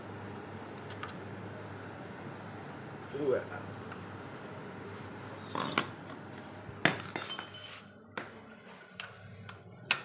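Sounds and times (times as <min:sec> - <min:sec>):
metal hand tools clinking: 0:07.2 - 0:07.7.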